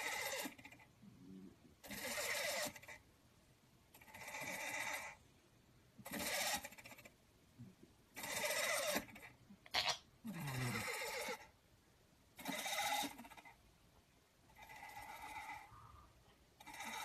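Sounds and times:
toy motor whirring: 0:01.9 - 0:02.9, 0:06.1 - 0:06.9, 0:08.2 - 0:09.3, 0:12.4 - 0:13.4.

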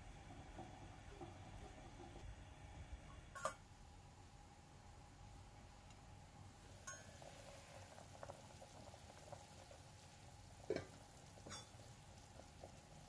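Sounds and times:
soup bubbling in a pot: 0:00.0 - 0:13.0
pot lid clinking: 0:10.7 - 0:11.8.

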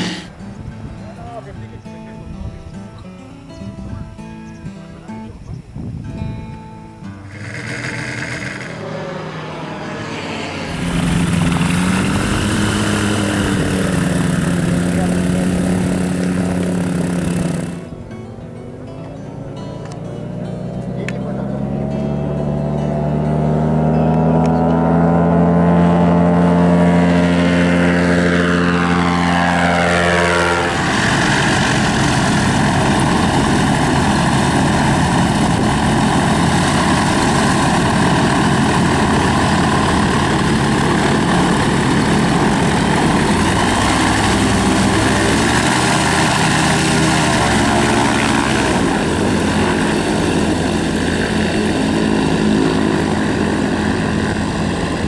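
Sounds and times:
ultralight engine pitch sliding down: 0:00.0 - 0:00.4, 0:07.2 - 0:18.1, 0:19.2 - 0:55.0
propeller aircraft engine idling: 0:07.2 - 0:20.0, 0:24.4 - 0:55.0.

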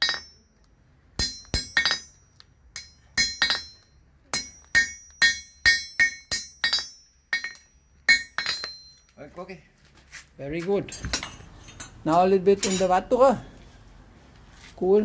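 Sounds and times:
hammer striking steel on anvil: 0:00.0 - 0:00.4, 0:01.2 - 0:09.1.

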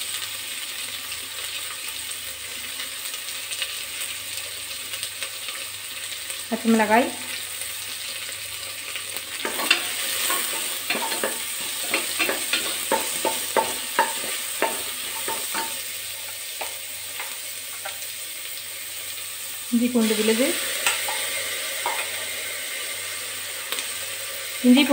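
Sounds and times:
food sizzling in hot oil: 0:00.0 - 0:24.9
wooden spatula scraping a pot: 0:09.4 - 0:18.0.

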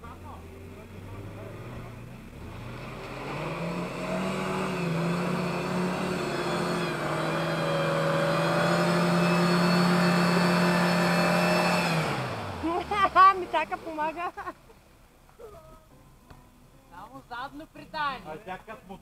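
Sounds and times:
car engine pulling in low gear: 0:00.0 - 0:14.2
water splashing from wheels: 0:00.9 - 0:14.6.

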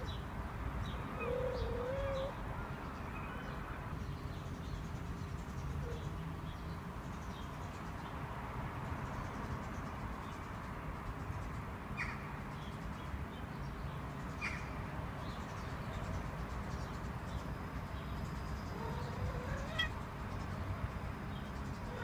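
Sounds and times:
outdoor background noise: 0:00.0 - 0:22.0
cat trilling: 0:18.7 - 0:20.0.

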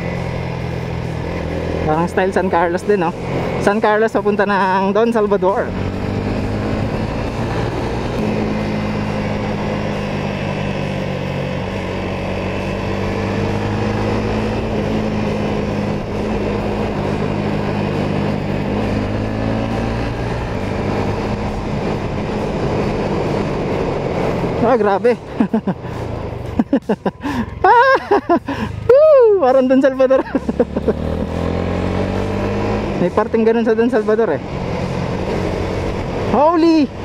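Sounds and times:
motorcycle engine running: 0:00.0 - 0:37.0
wind rushing: 0:05.7 - 0:26.6.

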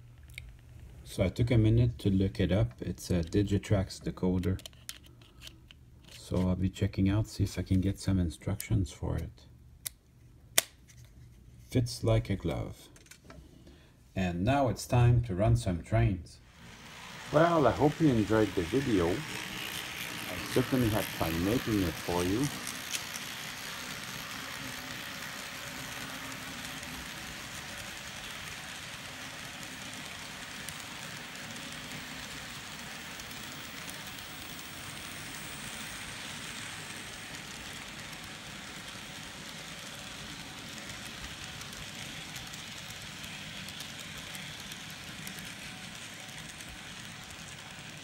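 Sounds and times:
model train wheels rattling on rail: 0:16.5 - 0:48.0.

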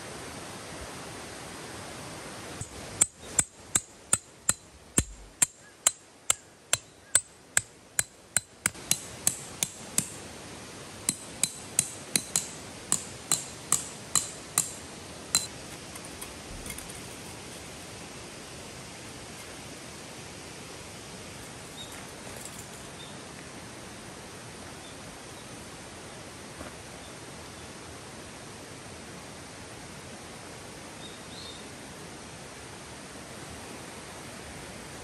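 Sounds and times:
stream hissing: 0:00.0 - 0:35.0
hammer on metal tent stake: 0:02.6 - 0:10.3, 0:11.0 - 0:17.0.

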